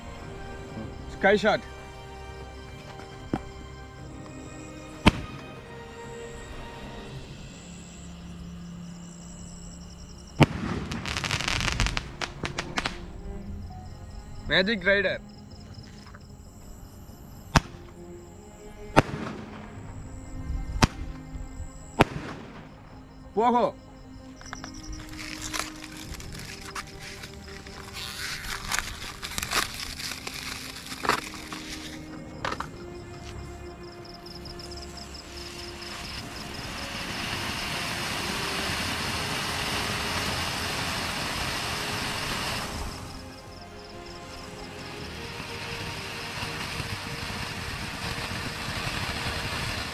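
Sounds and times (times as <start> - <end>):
firework fountain hissing: 3.3 - 13.3, 24.7 - 32.8, 34.2 - 49.9.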